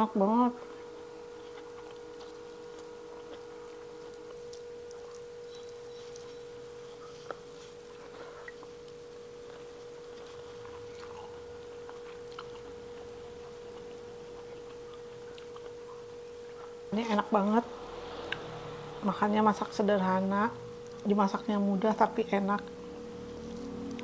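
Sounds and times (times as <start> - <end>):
steady humming tone: 0.0 - 24.0
chewing: 0.6 - 16.8, 20.8 - 21.2, 22.6 - 24.0.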